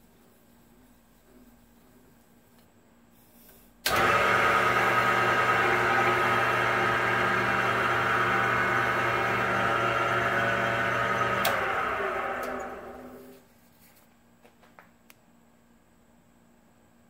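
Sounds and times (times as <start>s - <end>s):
wood lathe motor hum and whine: 3.9s - 13.4s.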